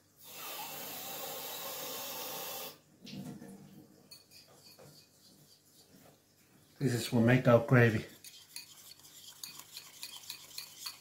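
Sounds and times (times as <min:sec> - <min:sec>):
faint handling sounds: 0:03.4 - 0:11.0.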